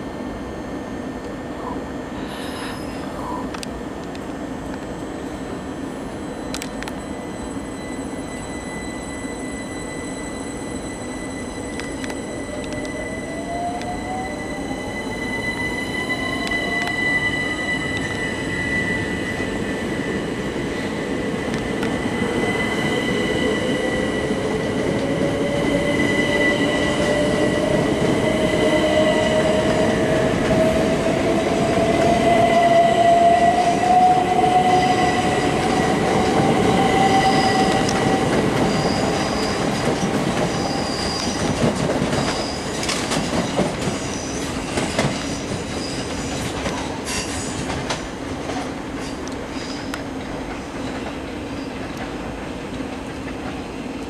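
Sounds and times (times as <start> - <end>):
electric train traction whine: 0.0 - 54.0
wheels rumbling on rails: 11.7 - 54.0.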